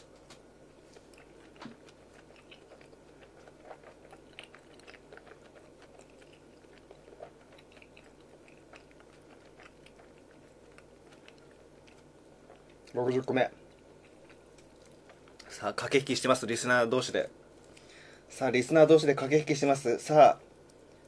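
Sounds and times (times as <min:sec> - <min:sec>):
person chewing food: 0:00.7 - 0:15.6.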